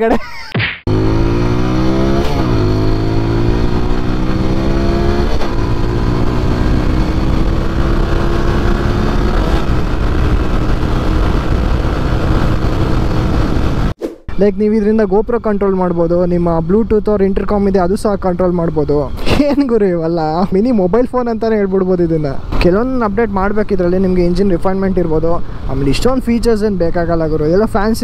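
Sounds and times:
motorcycle engine accelerating: 0.9s - 14.0s.

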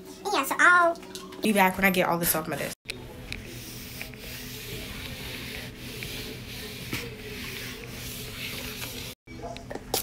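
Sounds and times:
cloth wiping wooden desk: 3.5s - 9.2s.

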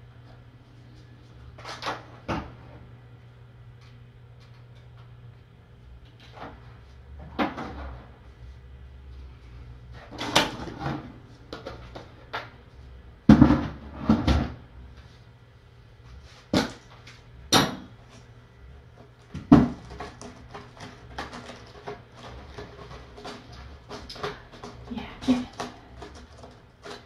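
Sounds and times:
objects knocking and clattering: 7.2s - 8.1s, 13.3s - 14.6s, 16.5s - 18.0s, 19.0s - 27.0s.

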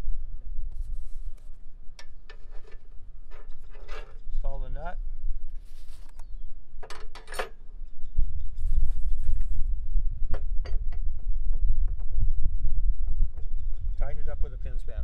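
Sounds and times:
metal tools clinking and scraping: 2.3s - 4.4s, 6.9s - 7.6s.

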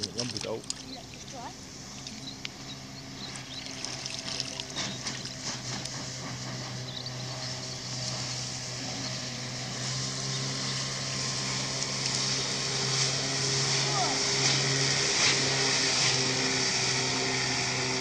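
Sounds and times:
soft water splashes: 0.0s - 2.6s, 3.3s - 5.4s
outboard motor humming: 0.0s - 18.0s
waves lapping at shoreline: 0.0s - 18.0s.

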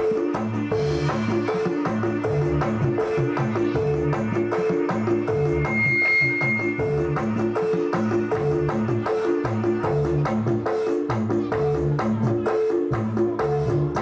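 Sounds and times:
percussion beat: 0.0s - 14.0s.

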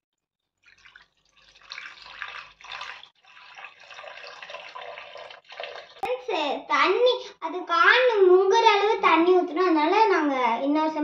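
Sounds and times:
water pouring into a pot: 0.6s - 6.1s.

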